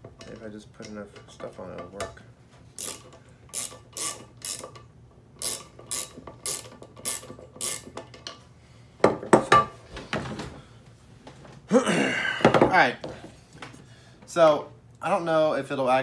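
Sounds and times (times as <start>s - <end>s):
screw turning with grating clicks: 2.8s - 8.4s.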